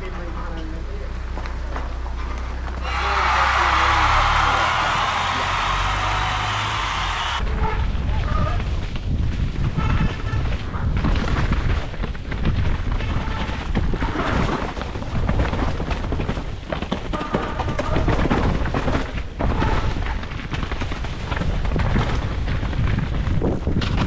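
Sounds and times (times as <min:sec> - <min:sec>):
bike clattering over rough ground: 0:10.9 - 0:24.0.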